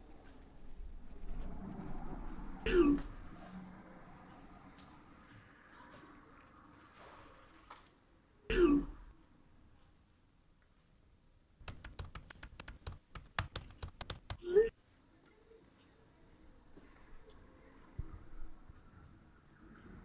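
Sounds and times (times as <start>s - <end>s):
typing on laptop keyboard: 11.6s - 14.6s.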